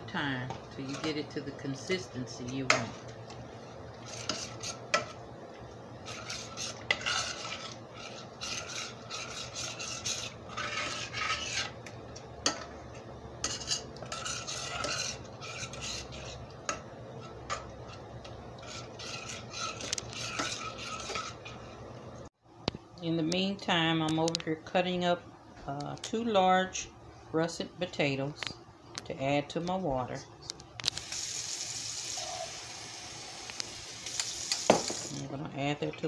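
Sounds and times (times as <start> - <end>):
metal spoon scraping pan: 0.8 - 3.0, 4.0 - 5.2, 6.0 - 11.8, 13.4 - 18.0, 18.6 - 21.7.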